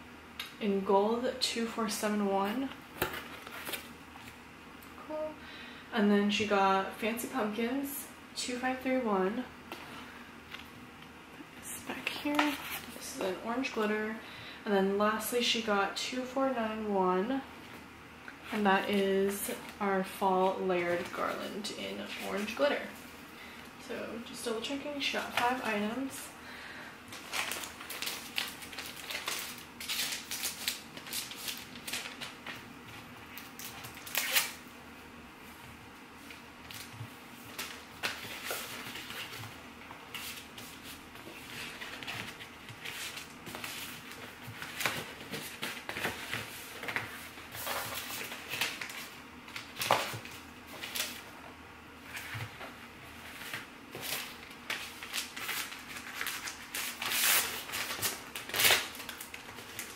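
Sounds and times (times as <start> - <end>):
paper and plastic rustling: 3.0 - 4.4, 12.0 - 13.0, 27.1 - 34.6, 36.2 - 51.3, 52.0 - 59.9.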